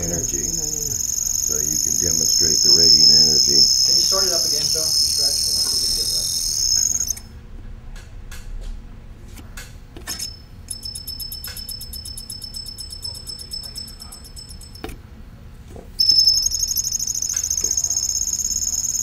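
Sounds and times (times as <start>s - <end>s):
motor high-pitched pulsing whine: 0.0s - 7.3s, 16.0s - 19.0s
sharp clicks: 16.0s - 18.5s.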